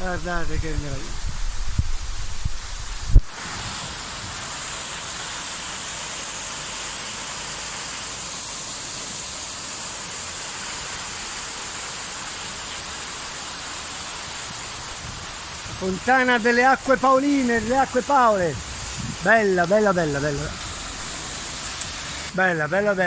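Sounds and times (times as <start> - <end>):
fountain water splashing: 0.0 - 23.0.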